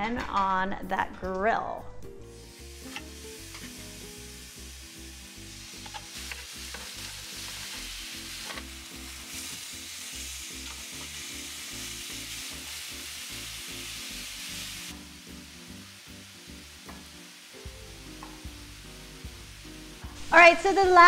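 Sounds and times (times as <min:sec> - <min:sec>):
chicken sizzling on grill pan: 0:02.3 - 0:20.7
background music with beat: 0:16.8 - 0:20.3.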